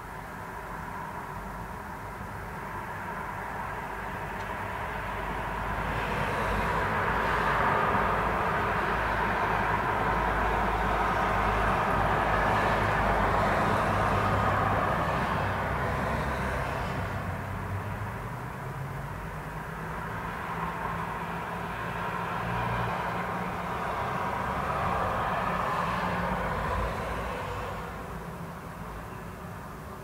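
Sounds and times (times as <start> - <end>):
vehicles passing: 0.0 - 30.0.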